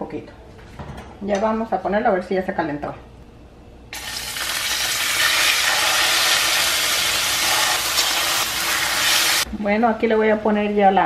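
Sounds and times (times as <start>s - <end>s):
chicken sizzling in hot oil: 4.0s - 9.5s.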